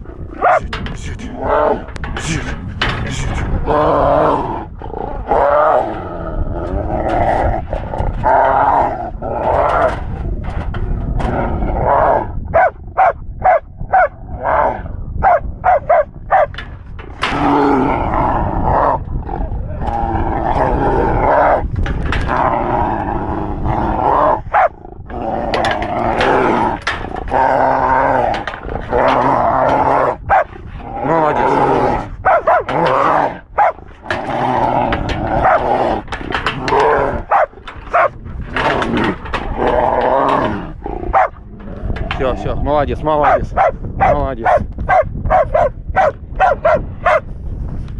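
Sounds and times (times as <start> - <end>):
dog barking: 0.4 - 0.6, 12.5 - 14.2, 15.2 - 16.5, 24.5 - 24.7, 30.3 - 30.5, 32.2 - 32.7, 33.6 - 33.8, 37.3 - 38.1, 41.1 - 41.4, 43.2 - 47.2
dog growling: 3.0 - 12.7, 17.2 - 42.4.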